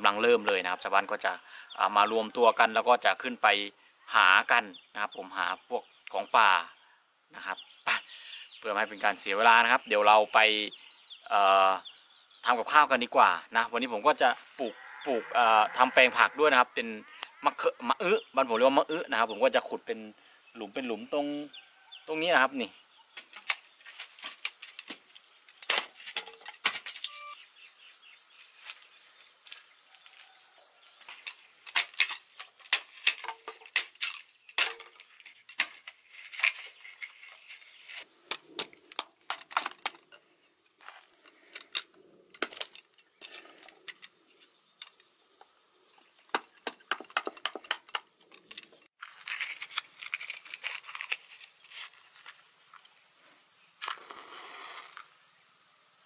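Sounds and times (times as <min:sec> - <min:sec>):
metal tool striking soil: 0:31.0 - 0:40.0.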